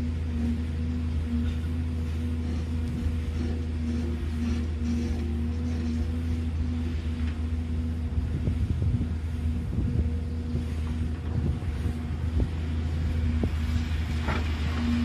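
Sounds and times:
excavator diesel engine running: 0.0s - 15.0s
steady tone: 0.0s - 15.0s
wind on microphone: 0.0s - 15.0s.

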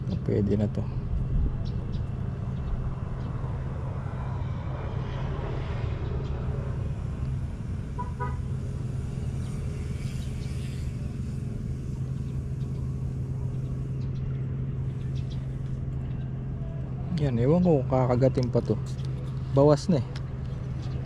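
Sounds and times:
engine drone: 0.0s - 21.0s
horn toot: 8.0s - 8.6s.

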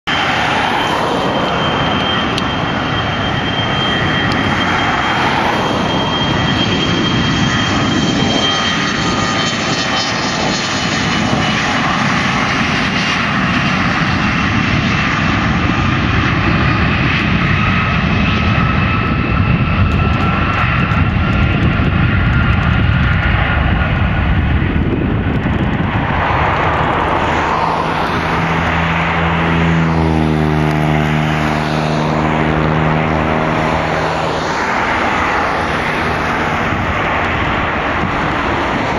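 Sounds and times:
jet engine roar with whine: 0.0s - 38.9s.

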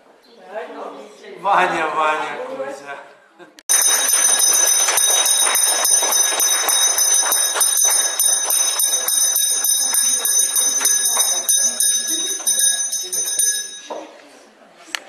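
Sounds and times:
handbell ringing rapidly: 3.7s - 13.9s.

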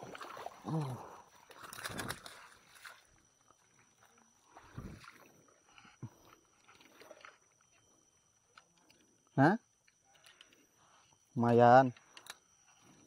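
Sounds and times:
small clicks: 11.9s - 12.8s.

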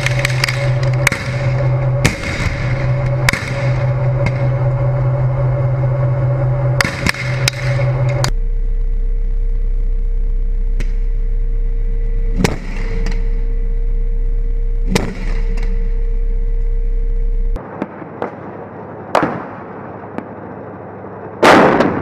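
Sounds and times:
armoured vehicle engine drone: 0.0s - 22.0s
tank diesel engine running: 0.0s - 22.0s
gunfire cracks: 21.4s - 22.0s.

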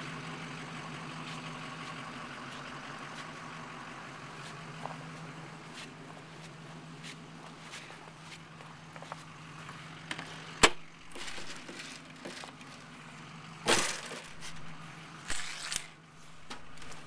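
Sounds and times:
door rattling scrapes: 11.0s - 12.8s, 13.7s - 17.0s.

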